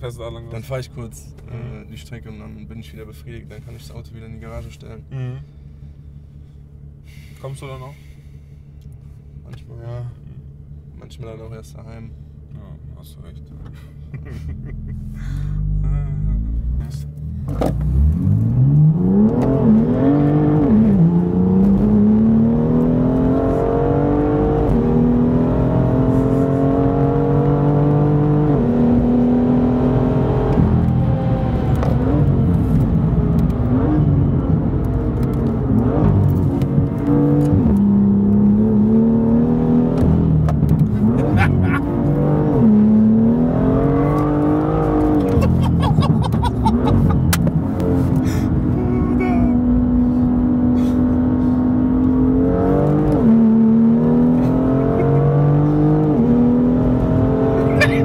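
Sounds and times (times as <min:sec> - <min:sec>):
car engine accelerating through gears: 0:14.5 - 0:58.0.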